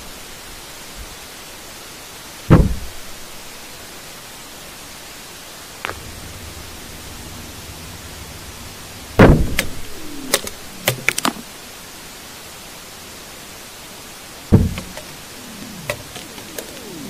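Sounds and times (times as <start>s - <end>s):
steady hiss: 0.0s - 17.0s
sharp knocks: 2.5s - 2.9s, 14.5s - 15.1s
heavy thud with low rumble: 2.5s - 3.0s, 5.9s - 11.1s, 14.5s - 15.0s.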